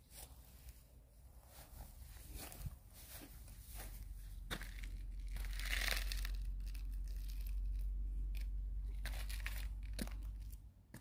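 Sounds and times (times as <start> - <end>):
footsteps on stone paving: 1.5 - 6.0, 9.0 - 11.0.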